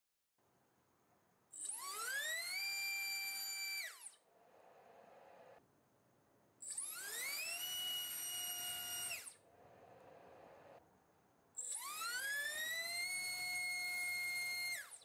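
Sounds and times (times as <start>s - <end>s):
drone motor whining: 1.6s - 4.2s, 6.6s - 9.4s, 11.6s - 15.0s.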